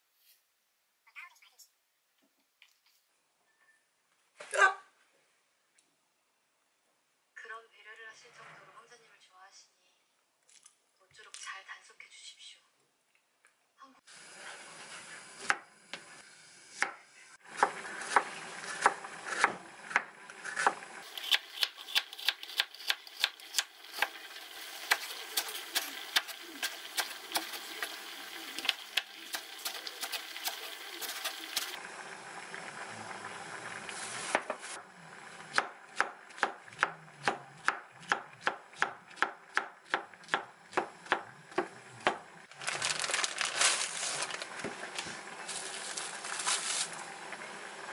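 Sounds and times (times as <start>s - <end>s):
knife chopping on wooden board: 17.6s - 24.2s, 35.5s - 42.2s.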